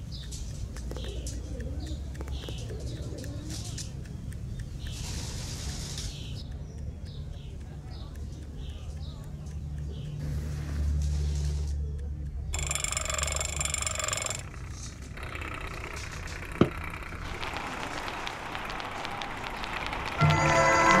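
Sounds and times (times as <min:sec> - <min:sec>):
sharp click: 0:00.0 - 0:20.4
gramophone needle crackle: 0:14.1 - 0:21.0
high ringing tone: 0:20.2 - 0:21.0
music from gramophone horn: 0:20.2 - 0:21.0.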